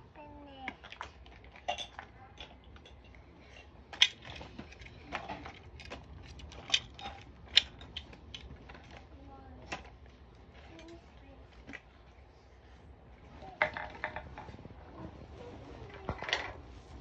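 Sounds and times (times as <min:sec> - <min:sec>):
child's voice: 0:00.0 - 0:00.8, 0:09.1 - 0:09.8, 0:10.6 - 0:11.6, 0:13.3 - 0:13.7, 0:14.9 - 0:16.5
toys clicking and clattering: 0:00.5 - 0:11.9, 0:13.4 - 0:15.2, 0:15.8 - 0:16.7.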